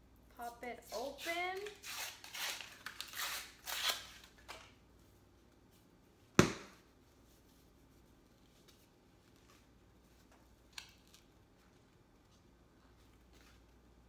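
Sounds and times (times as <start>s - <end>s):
cardboard tube popping open: 6.4s - 6.8s.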